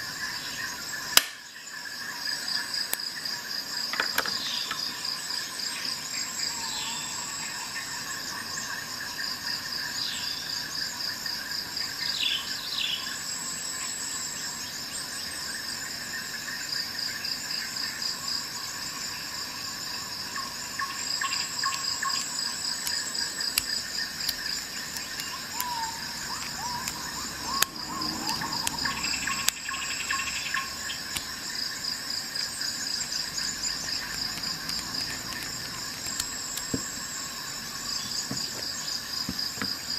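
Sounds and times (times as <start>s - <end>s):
insect chorus chirping: 0.0s - 39.9s
sharp clicks: 21.7s - 31.4s, 33.4s - 37.0s.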